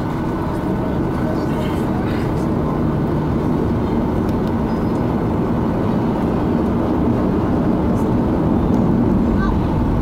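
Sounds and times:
airplane cabin engine rumble: 0.0s - 10.0s.

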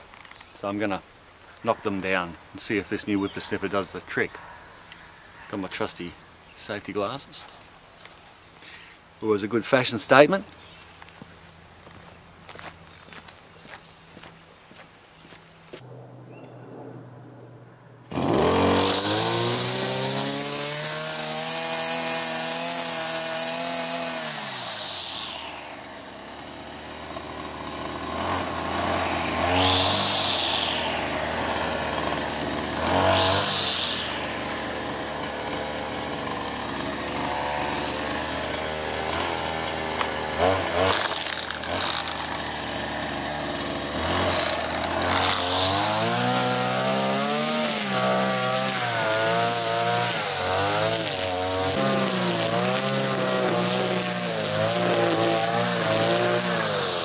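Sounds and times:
brushcutter revving: 18.1s - 57.0s.

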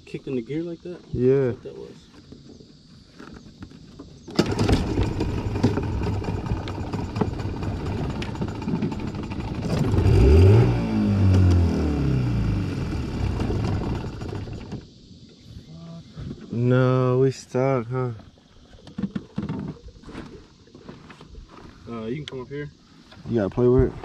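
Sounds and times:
outboard motor running: 4.3s - 14.9s.

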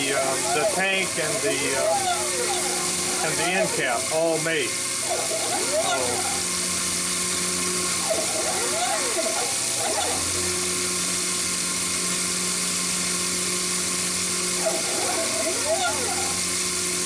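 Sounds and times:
end mill cutting hiss: 0.0s - 13.0s
milling machine motor hum: 0.0s - 17.0s
motor whine sweeping in pitch: 0.0s - 17.0s.

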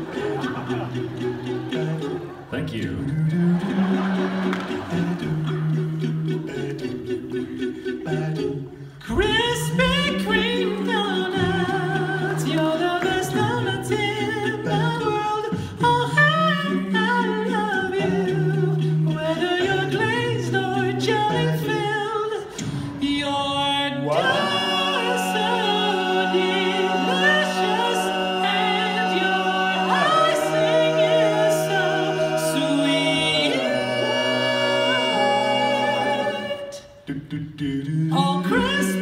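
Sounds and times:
male a cappella group singing: 0.0s - 39.0s.

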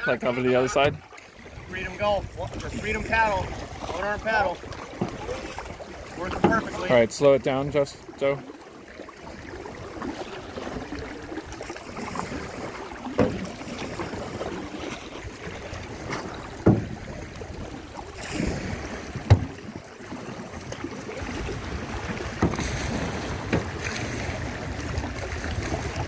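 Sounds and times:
canoe paddle strokes in water: 0.0s - 26.0s
water washing along hull: 0.0s - 26.0s
sharp knocks: 19.3s - 19.5s.

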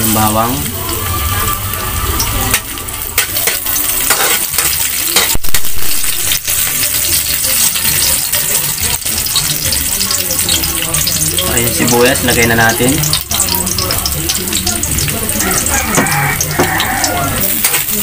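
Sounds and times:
garlic sizzling in hot oil: 0.0s - 18.0s
metal spoon scraping a wok: 1.0s - 7.3s.

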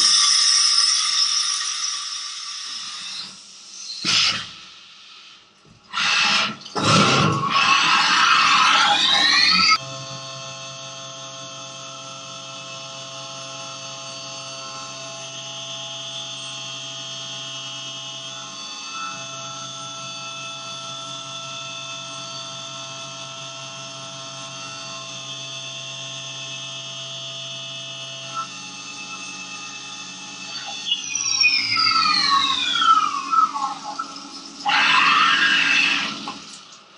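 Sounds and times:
milling machine whine: 5.9s - 36.9s.

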